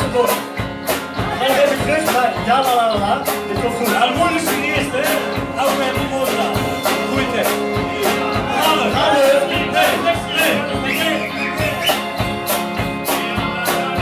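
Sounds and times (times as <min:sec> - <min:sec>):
electric guitars: 0:00.0 - 0:14.0
steady drum beat: 0:00.0 - 0:14.0
people singing into microphones: 0:07.5 - 0:12.0.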